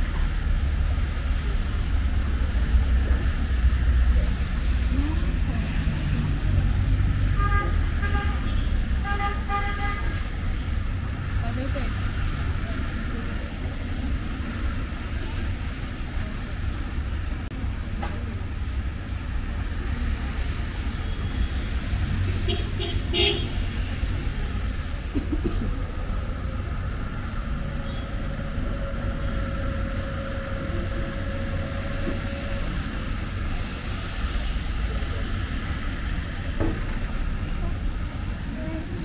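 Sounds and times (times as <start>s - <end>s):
traffic engines rumbling: 0.0s - 39.0s
car horn: 7.3s - 10.2s, 22.4s - 23.7s, 27.8s - 28.2s.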